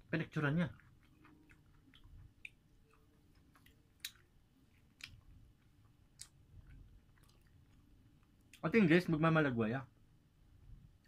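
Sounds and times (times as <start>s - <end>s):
faint chewing: 0.3s - 8.7s.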